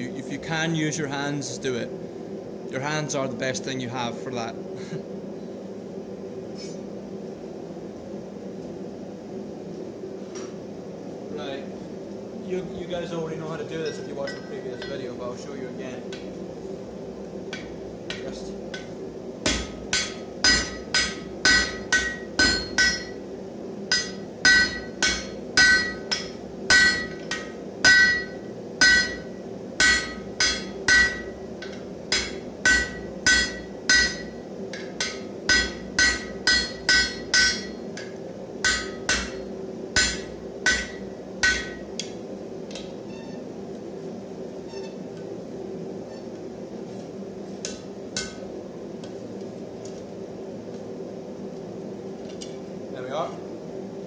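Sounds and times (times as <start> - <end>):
hammer striking hot metal on anvil: 13.8 - 15.1, 17.5 - 23.2, 23.9 - 42.2, 47.6 - 48.5.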